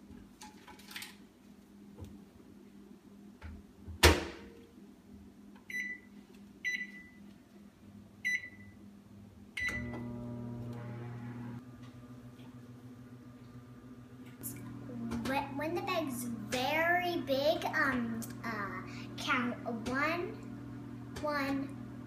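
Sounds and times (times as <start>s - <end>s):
keypad beeps: 5.7s - 6.0s, 6.7s - 7.2s
microwave humming: 9.6s - 22.0s.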